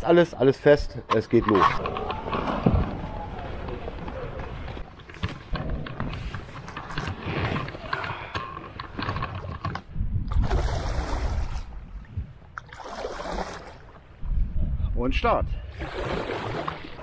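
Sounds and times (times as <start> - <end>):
knocks and rubbing from boat: 1.5 - 10.5.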